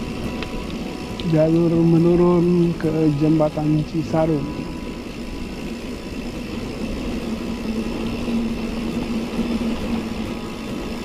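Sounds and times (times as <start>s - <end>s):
bike tyres rumbling on concrete: 0.0s - 11.0s
steady low hum: 0.0s - 11.0s.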